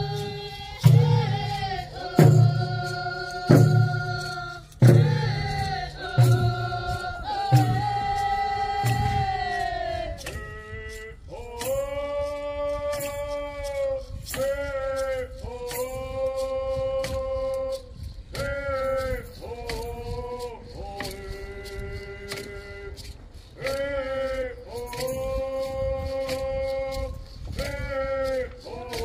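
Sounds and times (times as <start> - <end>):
person singing long notes: 0.0 - 17.8
slow drum beat: 0.0 - 24.1.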